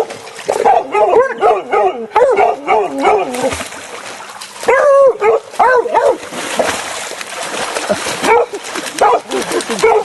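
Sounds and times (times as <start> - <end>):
dogs barking and yelping: 0.0 - 3.6, 4.6 - 6.2, 8.2 - 10.0.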